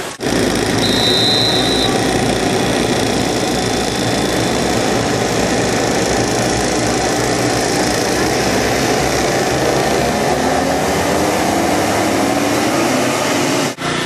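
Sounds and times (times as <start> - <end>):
racing kart engines droning: 0.0 - 14.0
high steady tone: 0.8 - 8.0.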